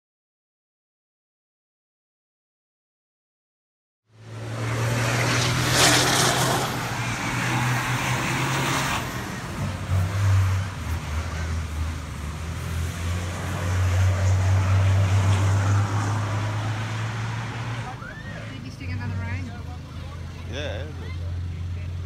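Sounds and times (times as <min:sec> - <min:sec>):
truck engine running: 0:17.8 - 0:22.0.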